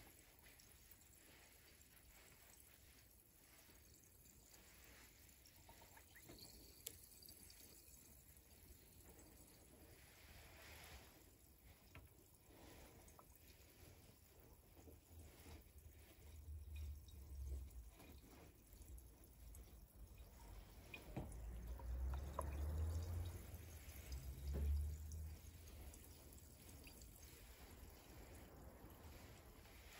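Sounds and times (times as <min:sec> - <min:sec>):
carbonated drink fizzing: 0:05.1 - 0:09.6, 0:19.9 - 0:29.7.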